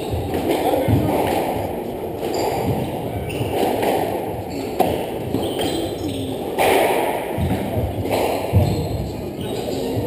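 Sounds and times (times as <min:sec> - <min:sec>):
echoing hall background noise: 0:00.0 - 0:10.0
squash ball struck by racquets: 0:00.0 - 0:10.0
ball rebounding off walls: 0:06.6 - 0:09.0
sharp knocks: 0:06.6 - 0:09.1.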